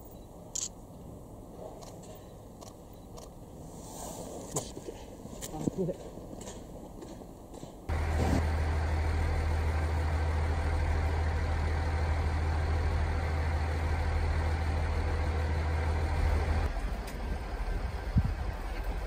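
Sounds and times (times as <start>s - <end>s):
diesel railcar engine idling: 7.3s - 19.0s.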